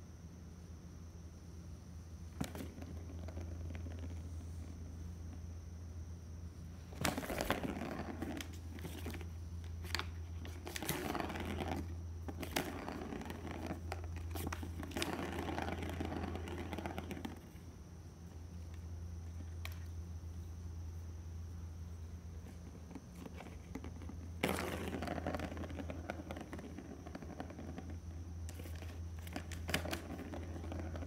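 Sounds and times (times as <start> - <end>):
low steady hum: 0.0 - 31.0
crinkling and scraping: 2.3 - 4.8, 6.8 - 17.6, 22.4 - 31.0.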